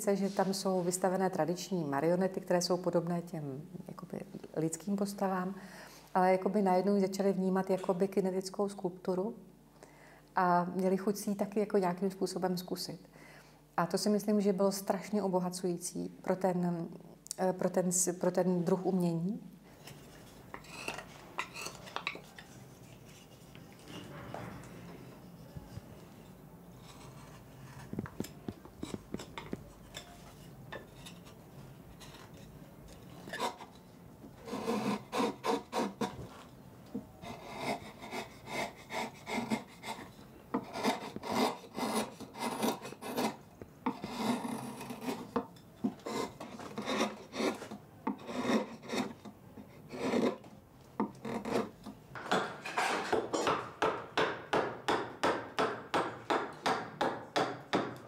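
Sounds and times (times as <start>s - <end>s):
hand rasp strokes on wood: 34.4s - 36.1s, 37.2s - 45.3s, 46.0s - 49.2s.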